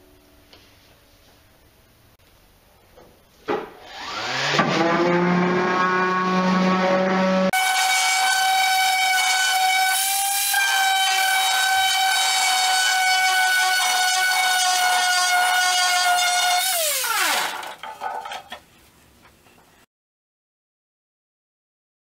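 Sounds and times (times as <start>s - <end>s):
sander motor whine: 3.8s - 13.0s.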